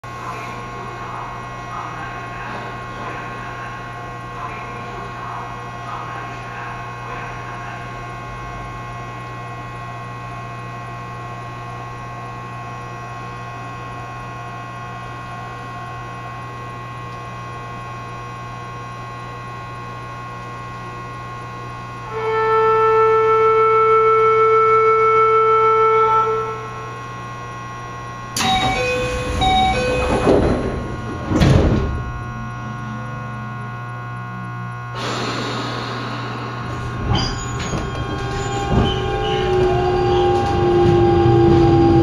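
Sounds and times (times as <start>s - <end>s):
electric train equipment hum: 0.0s - 42.0s
high whine: 21.8s - 42.0s
loud multi-pitched tone: 22.1s - 42.0s.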